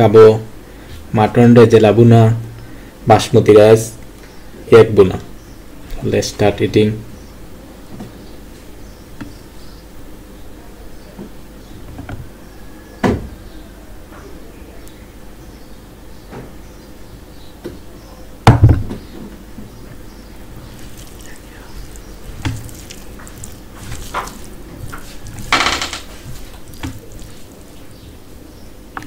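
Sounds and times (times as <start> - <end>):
hand mixing wet rice: 20.4 - 28.5.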